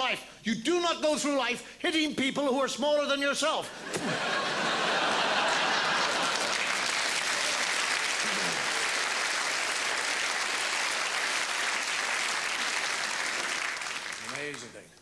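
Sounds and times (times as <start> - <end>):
audience applauding: 4.2 - 14.9.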